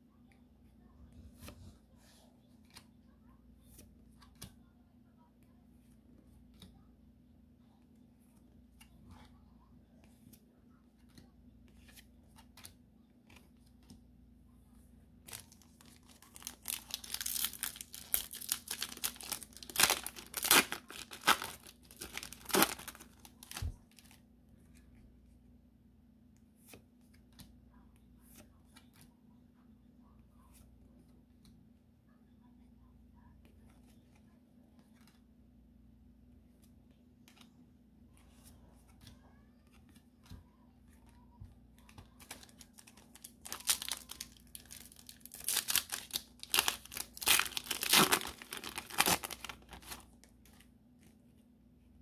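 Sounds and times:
foil wrapper crinkling and tearing: 0:15.3 - 0:24.1, 0:42.2 - 0:50.1.

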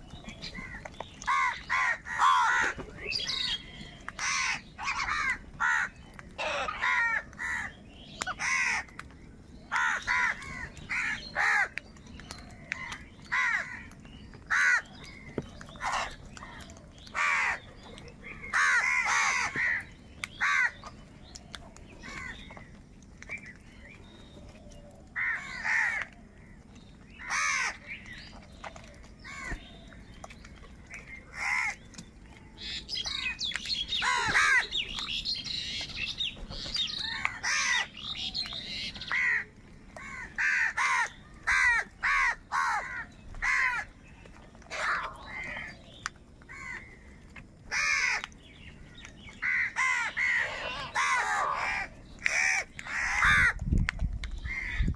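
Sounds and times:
crows cawing: 0:00.6 - 0:03.5, 0:04.2 - 0:09.0, 0:09.7 - 0:11.8, 0:12.8 - 0:14.9, 0:17.1 - 0:17.6, 0:18.5 - 0:20.8, 0:25.2 - 0:26.6, 0:27.2 - 0:27.8, 0:31.3 - 0:31.8, 0:33.9 - 0:34.8, 0:36.8 - 0:38.4, 0:39.0 - 0:44.0, 0:44.7 - 0:45.8, 0:46.5 - 0:47.0, 0:47.7 - 0:48.3, 0:49.4 - 0:53.6.

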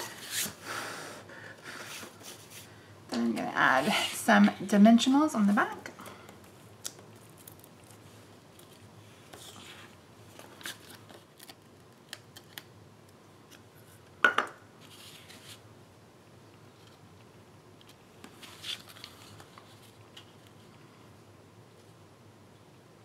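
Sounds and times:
paper rustling: 0:18.2 - 0:20.8.

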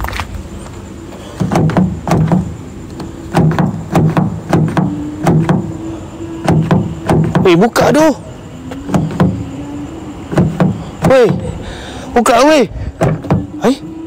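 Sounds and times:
muffled song from car radio: 0:02.9 - 0:14.0.

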